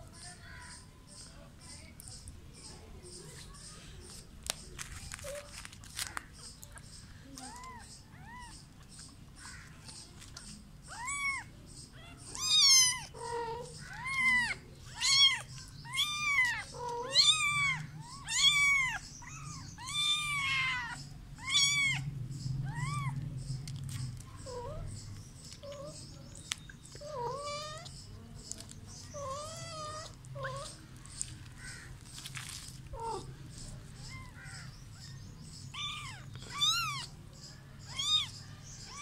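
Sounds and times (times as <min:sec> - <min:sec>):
cat meowing: 0:10.9 - 0:23.2, 0:27.0 - 0:27.9, 0:29.1 - 0:30.8, 0:34.0 - 0:35.1, 0:35.7 - 0:37.1, 0:37.8 - 0:39.0.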